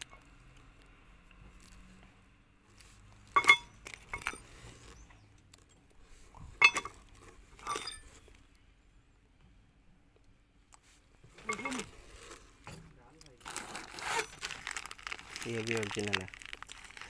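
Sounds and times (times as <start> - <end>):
steel gears clinking: 3.3 - 5.0, 6.6 - 7.0, 7.6 - 8.4.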